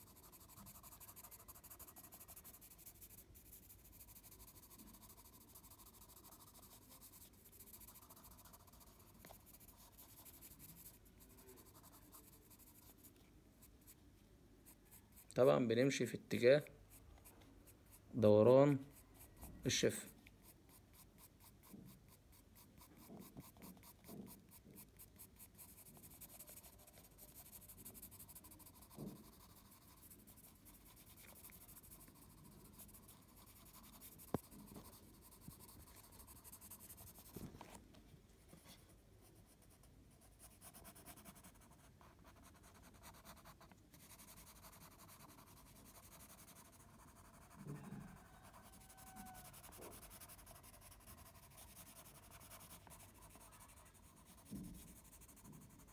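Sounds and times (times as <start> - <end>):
pencil scratching on paper: 0.0 - 14.0, 14.6 - 37.8, 38.5 - 55.9.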